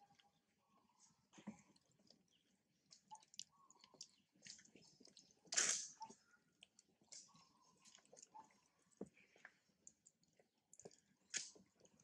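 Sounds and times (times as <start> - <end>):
squishy peel sounds: 5.4 - 6.0.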